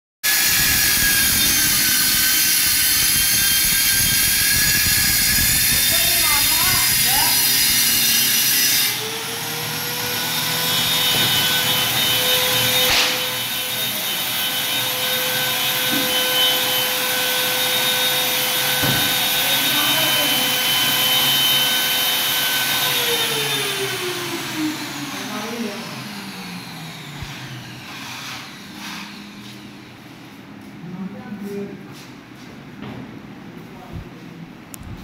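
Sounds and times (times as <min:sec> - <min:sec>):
power tool motor whining: 0:00.3 - 0:29.5
sharp knock: 0:12.9 - 0:13.2.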